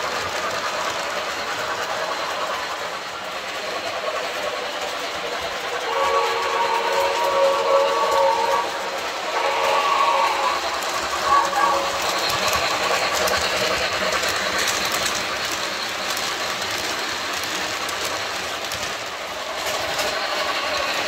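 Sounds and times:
model train running on track: 0:00.0 - 0:21.0
electronic steam whistle: 0:05.8 - 0:12.8.

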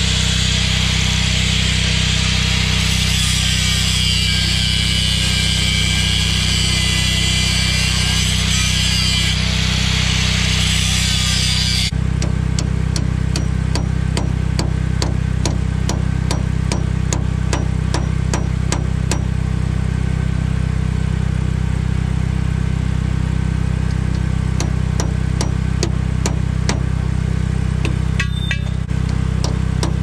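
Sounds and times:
angle grinder cutting metal: 0:00.0 - 0:12.0
hammer blows on metal: 0:27.8 - 0:30.0.

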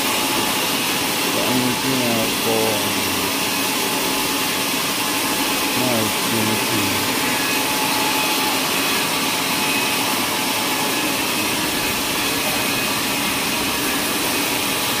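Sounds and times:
sawmill machinery running: 0:00.0 - 0:15.0
faint steady whine: 0:00.1 - 0:15.0.

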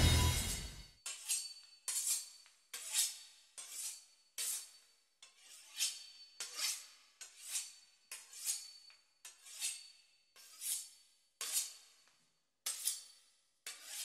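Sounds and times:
knife sawing through pastry crust: 0:01.4 - 0:11.9, 0:13.7 - 0:14.0.

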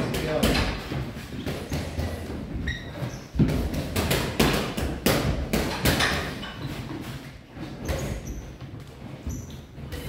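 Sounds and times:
shoe squeaks: 0:01.4 - 0:03.4, 0:06.4 - 0:10.0.

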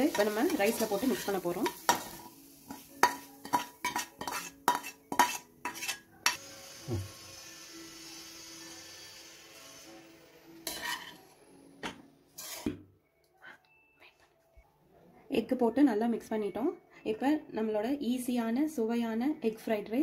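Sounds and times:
metal spatula clanking on pans: 0:00.0 - 0:06.4, 0:10.6 - 0:12.8
stirring rice in a wok: 0:00.0 - 0:06.4.

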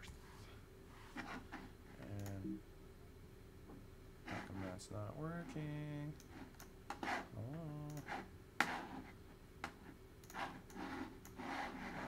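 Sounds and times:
soft breaths: 0:00.2 - 0:01.2
computer mouse clicks: 0:02.0 - 0:02.4, 0:07.8 - 0:08.8, 0:09.6 - 0:11.4.

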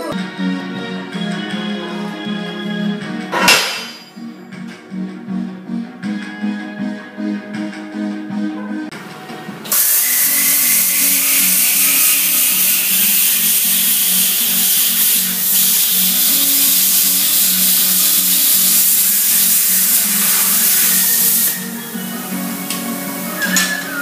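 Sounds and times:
background music: 0:00.0 - 0:24.0
plasma cutter hissing: 0:09.7 - 0:24.0.

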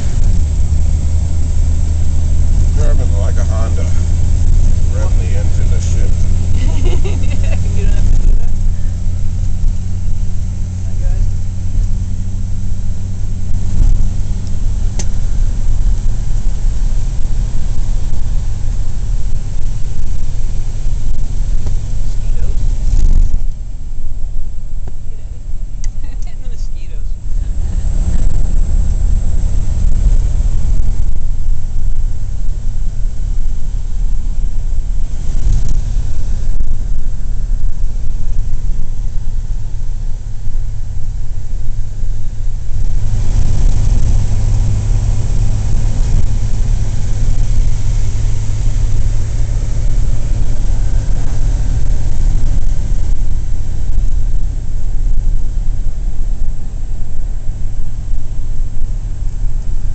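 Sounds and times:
car engine rumbling: 0:00.0 - 0:59.9
road and wind noise: 0:00.0 - 0:59.9.

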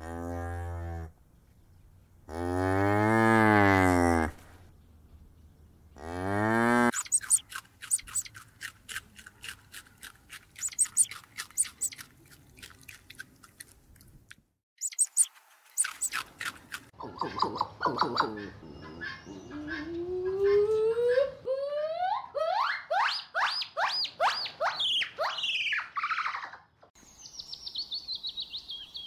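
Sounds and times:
rabbit chewing greens: 0:06.9 - 0:14.2, 0:15.0 - 0:17.0.

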